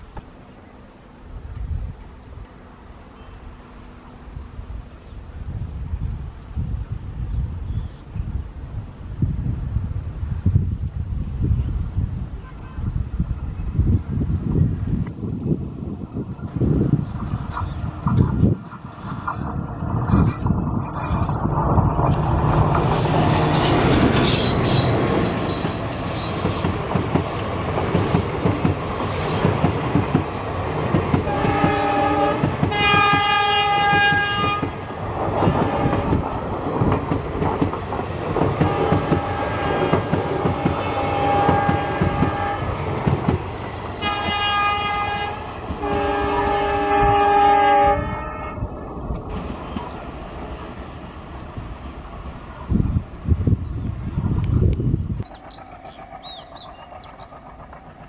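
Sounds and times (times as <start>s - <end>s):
locomotive horn: 12.4s - 13.0s, 31.3s - 34.7s, 35.5s - 36.2s, 38.6s - 42.7s, 44.0s - 48.7s
diesel locomotive engine chugging: 15.6s - 58.0s
train coaches clattering over rails: 16.1s - 53.2s.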